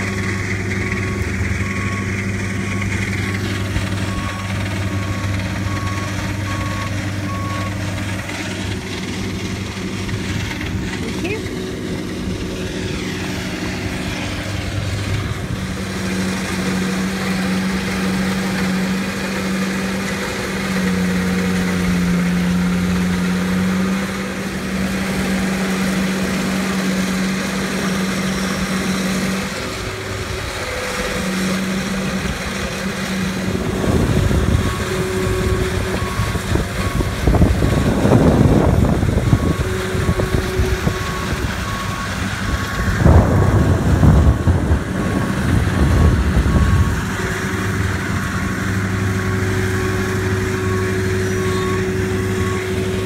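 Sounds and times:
stump grinder engine running: 0.0 - 53.0
rough rumbling: 24.9 - 53.0
backup alarm beeping: 33.6 - 43.2.

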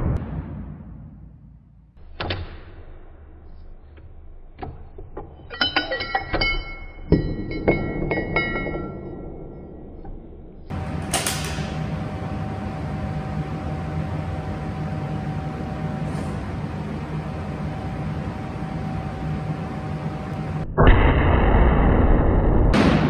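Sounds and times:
background hum and hiss: 10.7 - 20.7.

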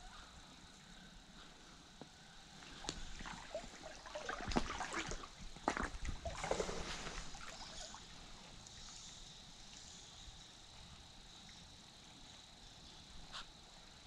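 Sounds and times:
water splashing and trickling: 2.4 - 12.8.

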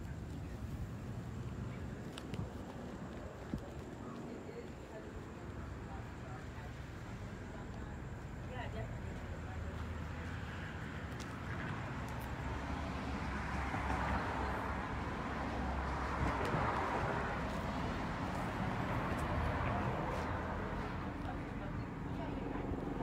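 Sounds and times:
vehicle passing: 9.4 - 23.0.

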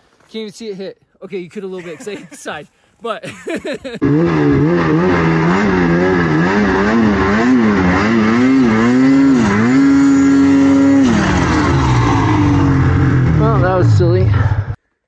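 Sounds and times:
snowmobile engine revving: 3.3 - 14.8.

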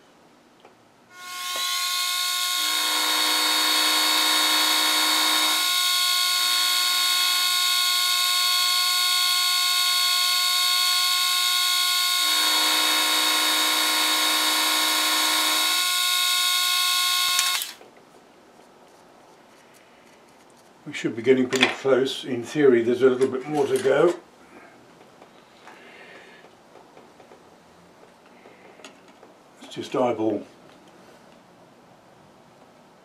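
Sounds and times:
end mill cutting steel: 1.1 - 17.8
milling machine spindle whine: 1.2 - 17.7.

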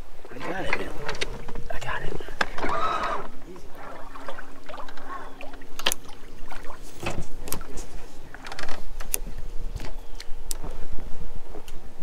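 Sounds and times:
faint steady hum: 0.0 - 12.0
fishing reel and rod clicks: 5.8 - 6.1.

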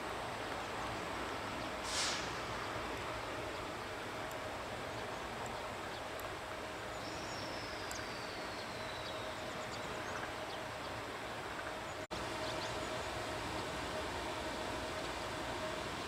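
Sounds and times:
train rolling: 0.0 - 16.0
birds chirping: 6.8 - 13.8.

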